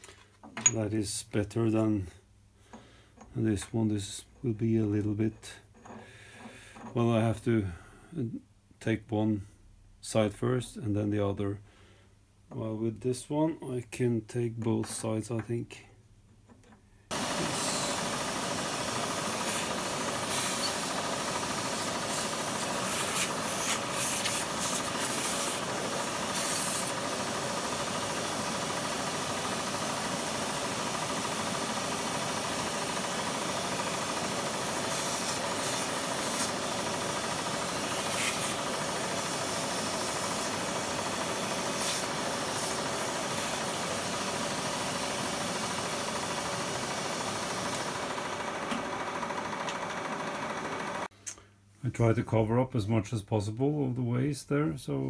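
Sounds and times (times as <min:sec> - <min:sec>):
milling machine cutting metal: 0:17.1 - 0:51.1.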